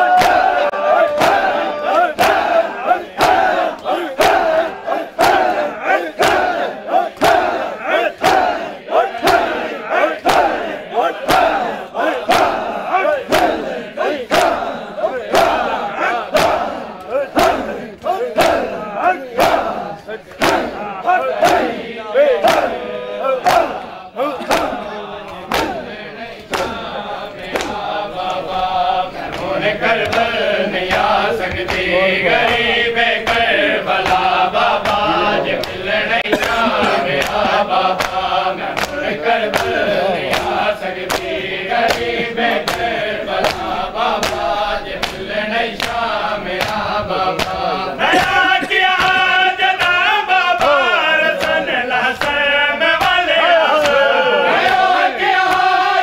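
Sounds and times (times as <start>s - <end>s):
men chanting a lament: 0.0s - 56.0s
hands slapping bare chests: 0.2s - 18.8s, 19.4s - 22.8s, 23.4s - 28.6s, 29.2s - 52.4s, 53.0s - 56.0s.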